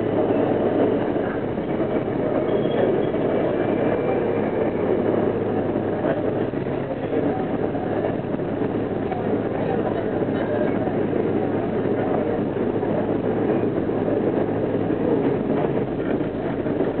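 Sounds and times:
subway car running in tunnel: 0.0 - 17.0.

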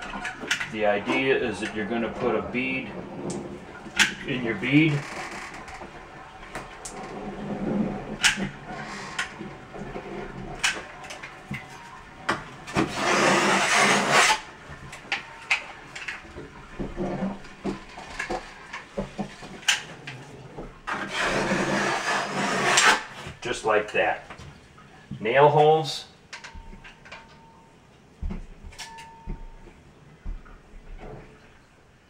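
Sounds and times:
putty knife scraping sealant: 12.7 - 14.5, 20.9 - 23.4.

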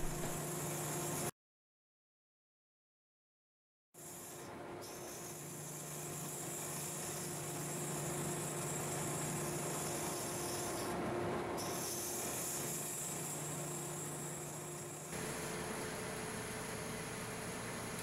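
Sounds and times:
lathe motor hum: 0.0 - 1.0.

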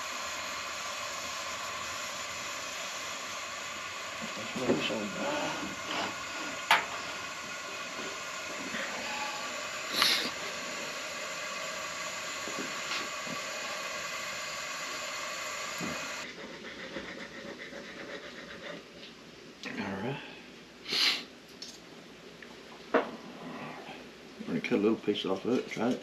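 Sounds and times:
gas burners hissing: 0.0 - 16.3.

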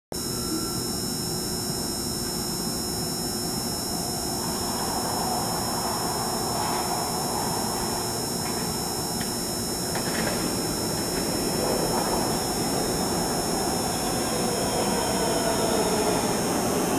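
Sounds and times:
steady background hum: 0.2 - 16.9
train rumbling on track: 3.9 - 16.9.

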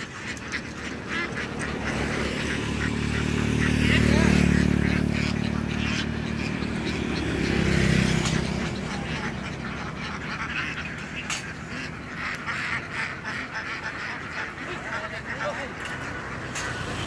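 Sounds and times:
flock of ducks quacking: 0.0 - 17.0
low engine hum: 0.0 - 17.0.

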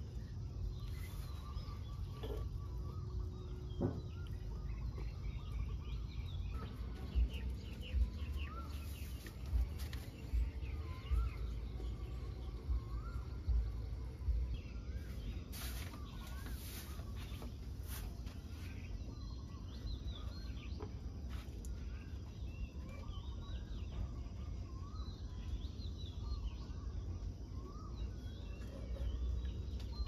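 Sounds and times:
low rumble: 0.0 - 15.4.

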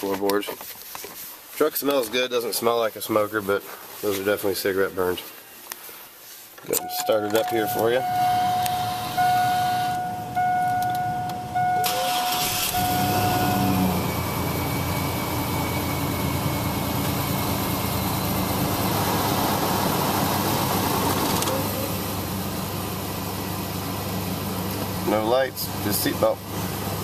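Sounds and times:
dashboard warning tone: 6.7 - 17.4
engine cranking and idling: 6.8 - 25.0.

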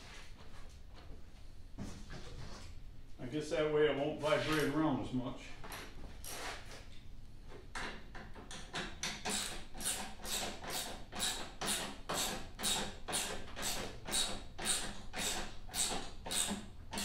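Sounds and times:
ratchet wrench ratcheting: 9.0 - 17.0.

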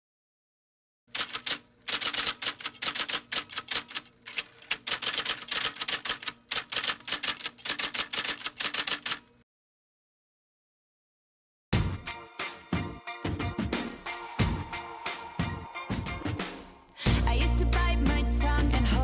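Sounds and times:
typewriter key clacks: 1.1 - 9.3.

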